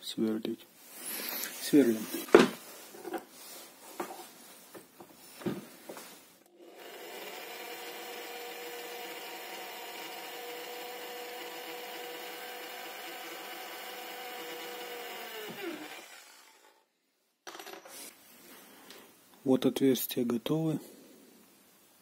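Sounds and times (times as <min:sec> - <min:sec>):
drill motor spinning down: 0:06.6 - 0:16.8
electric drill boring into metal: 0:06.6 - 0:16.8.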